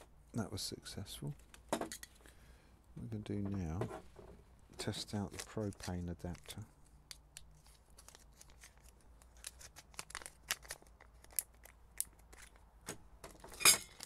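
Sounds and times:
plastic bag crinkling: 0:05.0 - 0:12.7, 0:13.3 - 0:14.0.

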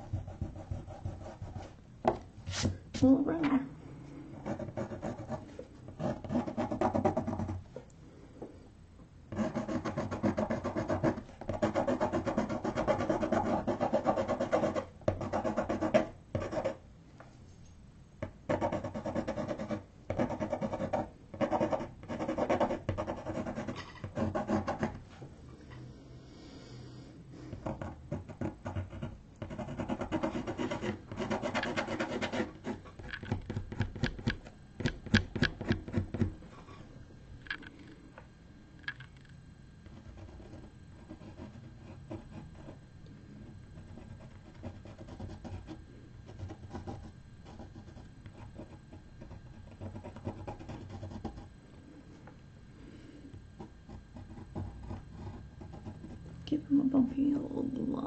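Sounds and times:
pencil shading on paper: 0:00.0 - 0:01.7, 0:09.4 - 0:16.8, 0:18.5 - 0:25.0, 0:27.5 - 0:32.8, 0:53.6 - 0:56.2.

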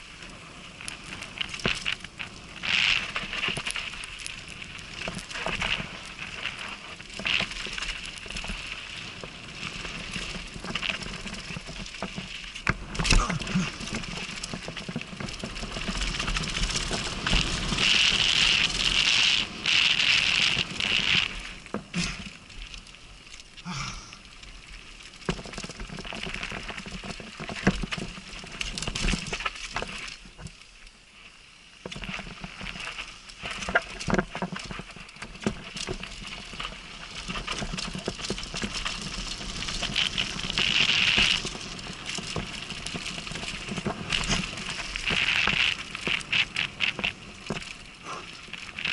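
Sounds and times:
tyres crunching over gravel: 0:00.0 - 0:30.6, 0:31.8 - 0:48.9
bike knocks and rattles: 0:04.9 - 0:22.4, 0:25.2 - 0:30.6, 0:31.8 - 0:47.8.

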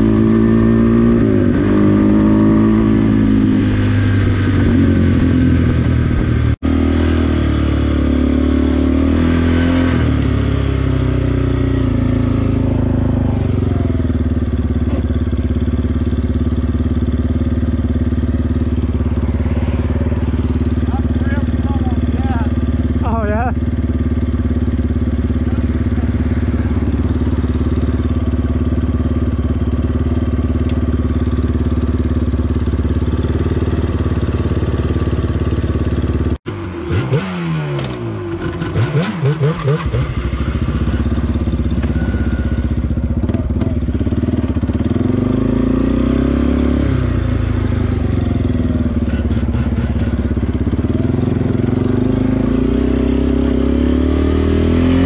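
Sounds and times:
engine revving with rattling: 0:00.0 - 0:55.0
quad engines idling: 0:11.0 - 0:36.8, 0:37.8 - 0:46.0, 0:46.9 - 0:53.2.

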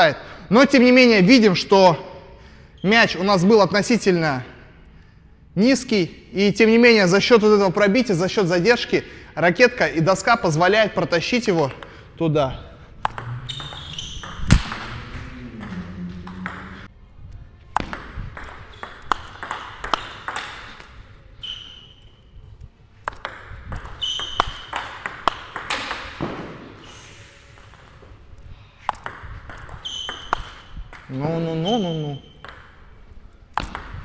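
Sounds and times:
rackets striking ball: 0:11.5 - 0:12.1, 0:12.9 - 0:16.9, 0:17.7 - 0:21.1, 0:23.0 - 0:26.8, 0:28.8 - 0:31.2, 0:32.2 - 0:34.0
table tennis ball click-clack: 0:13.0 - 0:16.8.

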